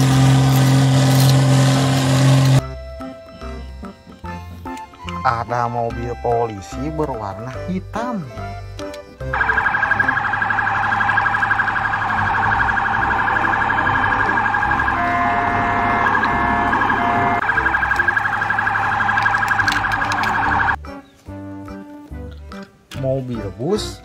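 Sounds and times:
toy siren warbling: 9.3 - 20.8.

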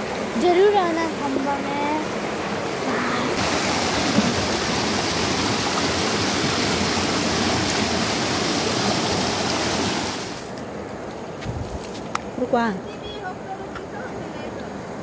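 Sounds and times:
river water rushing over rocks: 0.0 - 10.4.

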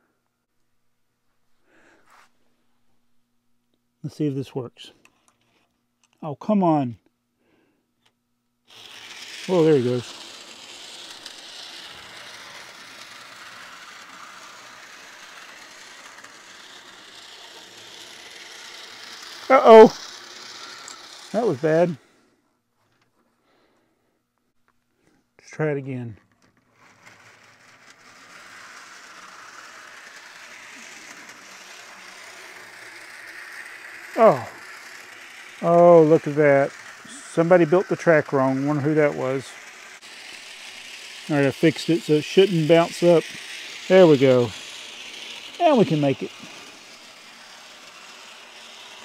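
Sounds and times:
model train motor whirring: 8.0 - 22.2, 25.4 - 49.0
wheels rattling on rails: 8.7 - 21.9, 27.8 - 49.0.

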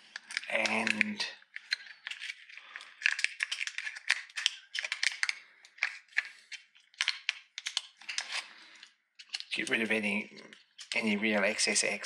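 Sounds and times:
metal foil crinkling: 0.0 - 11.6.

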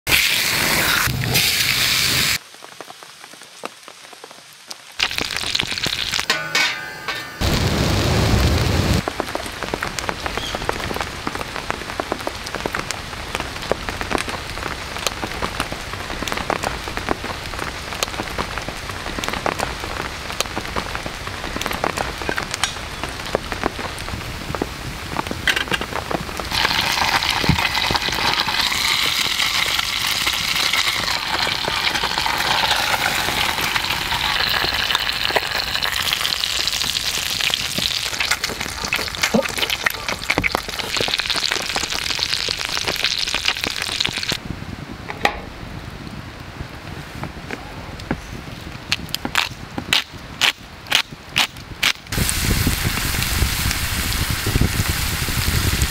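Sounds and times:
cooking sounds: 0.0 - 2.4, 5.0 - 11.0, 13.6 - 44.4, 49.3 - 55.9
pork frying sizzle: 0.0 - 2.4, 3.2 - 24.5, 25.2 - 44.4, 48.9 - 55.9
fine steady crackling: 7.4 - 45.0.

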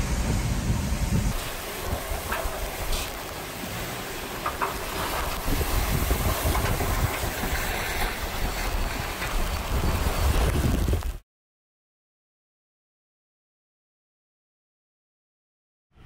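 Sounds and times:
steady rush of wind: 0.0 - 11.2
wind buffeting microphone: 0.0 - 11.2.

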